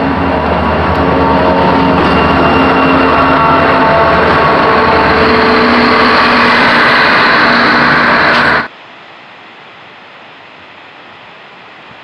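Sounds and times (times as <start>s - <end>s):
train wheels rushing on rail: 0.0s - 8.7s.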